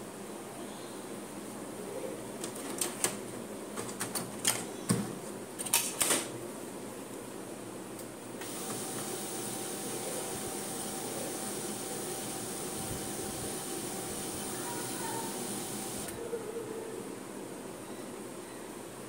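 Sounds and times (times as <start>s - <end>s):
printer motor and fan hum: 8.2s - 16.4s.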